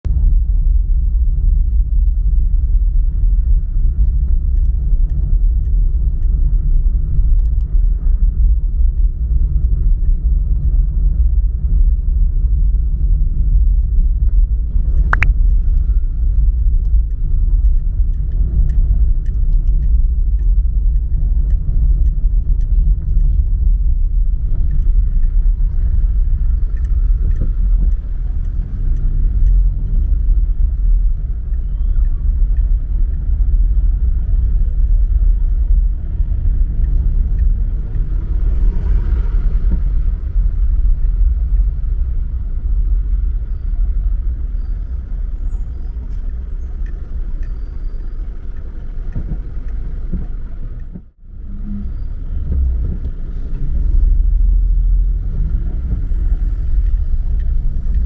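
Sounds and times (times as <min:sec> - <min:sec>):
car driving rumble: 0:00.0 - 0:58.0
sharp click: 0:15.0 - 0:15.9.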